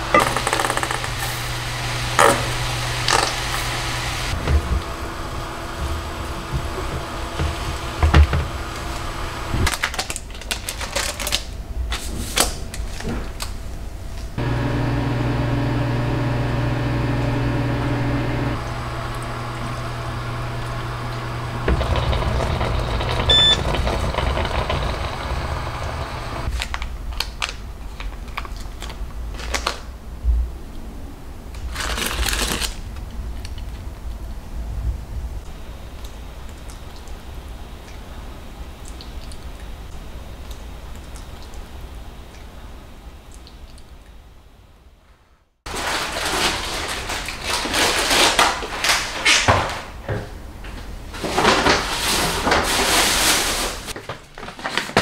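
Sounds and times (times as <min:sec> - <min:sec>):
microwave oven humming: 0:00.0 - 0:09.8, 0:14.4 - 0:26.5
microwave beep: 0:21.6 - 0:26.4.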